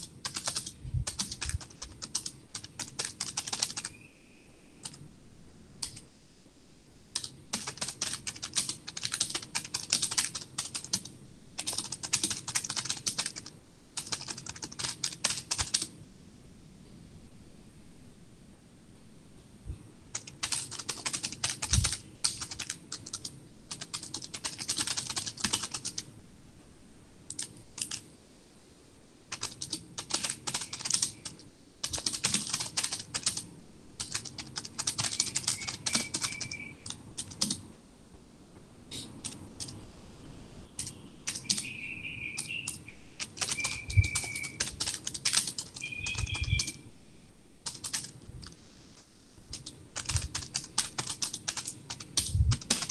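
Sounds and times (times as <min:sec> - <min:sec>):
typing on computer keyboard: 0:00.0 - 0:04.0, 0:05.8 - 0:06.0, 0:07.1 - 0:15.9, 0:20.1 - 0:26.1, 0:27.3 - 0:28.0, 0:29.3 - 0:37.6, 0:38.9 - 0:39.8, 0:40.8 - 0:41.8, 0:42.4 - 0:46.9, 0:47.6 - 0:48.6, 0:49.5 - 0:52.9.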